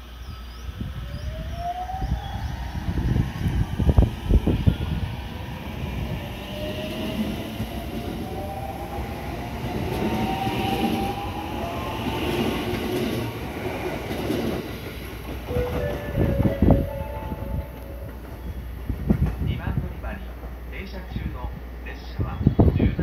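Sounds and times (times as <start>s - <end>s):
wheel and rail noise: 3.0s - 20.8s.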